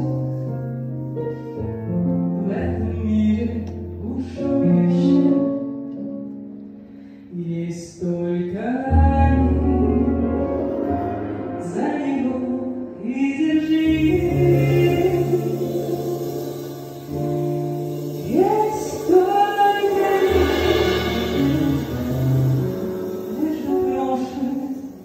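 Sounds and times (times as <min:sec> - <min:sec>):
woman singing: 0:07.4 - 0:10.4, 0:11.6 - 0:17.0, 0:18.2 - 0:20.8, 0:23.3 - 0:25.0
bass line: 0:08.9 - 0:24.5
live band playing: 0:09.0 - 0:25.0.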